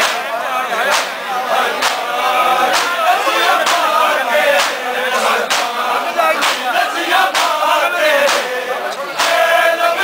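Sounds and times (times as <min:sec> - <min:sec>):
men chanting in chorus: 0:00.0 - 0:10.0
collective chest slaps: 0:04.6 - 0:04.8, 0:05.5 - 0:05.7.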